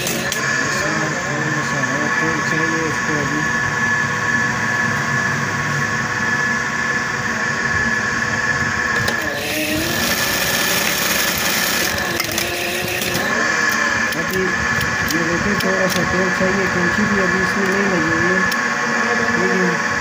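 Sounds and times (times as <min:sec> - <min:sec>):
sewing machine motor humming: 0:00.0 - 0:02.4, 0:08.9 - 0:19.8.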